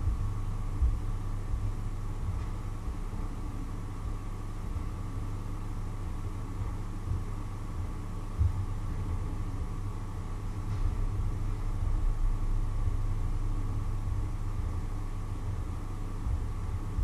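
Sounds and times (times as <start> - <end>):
faint hum: 0.0 - 17.0
low rumble of heating water: 0.0 - 17.0.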